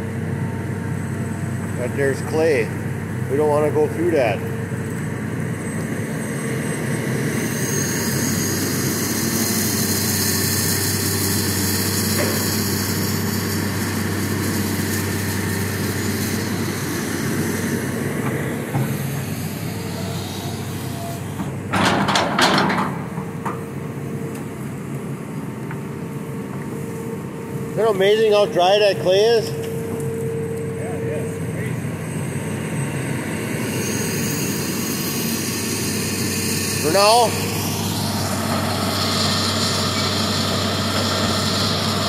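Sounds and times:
excavator engine running: 0.0 - 42.0
loud knocking and scraping: 10.5 - 19.4, 21.4 - 23.6.

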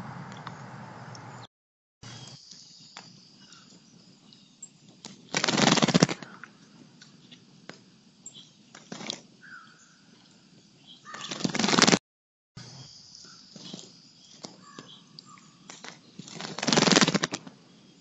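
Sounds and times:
bird wings fluttering and splashing: 5.0 - 6.6, 8.7 - 9.3, 11.1 - 12.0, 15.6 - 17.5.

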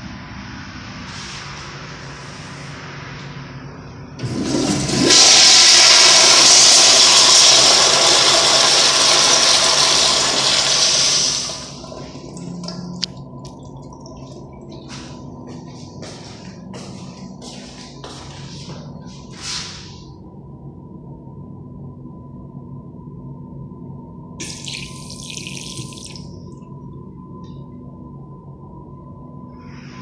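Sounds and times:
toilet flush water rushing: 4.2 - 13.0, 24.4 - 26.3.

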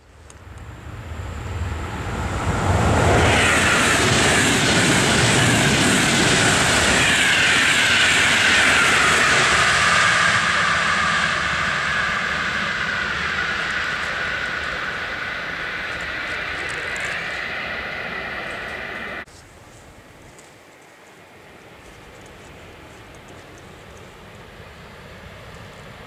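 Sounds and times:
train wheels rushing on rails: 0.0 - 19.3, 20.3 - 26.0
train whine falling in pitch: 0.6 - 19.3.

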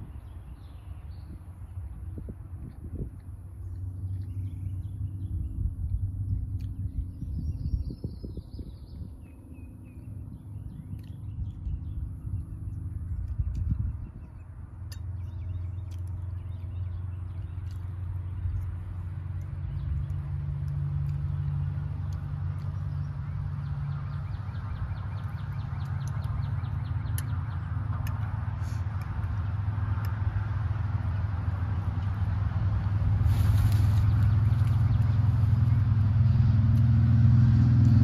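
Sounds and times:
vehicle engine rumble: 0.0 - 38.0.

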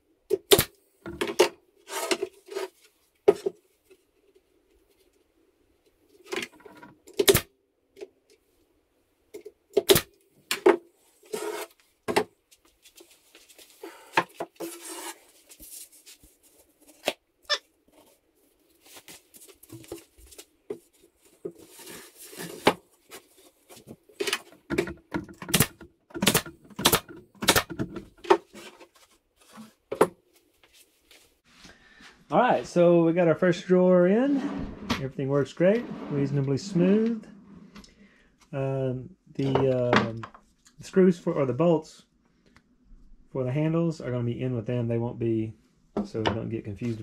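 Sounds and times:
panel scraping as it slides: 14.6 - 15.2, 34.1 - 38.1
wooden panels knocking: 24.7 - 28.4.

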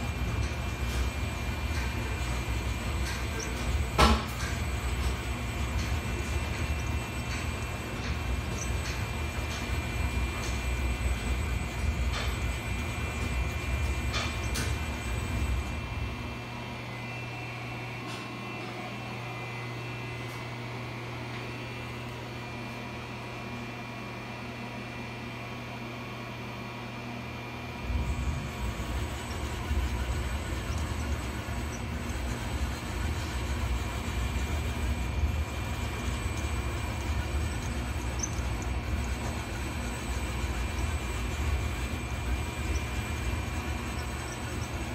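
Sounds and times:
thin high-pitched whines: 0.0 - 15.8, 27.9 - 44.9
milling machine humming: 0.0 - 44.9.

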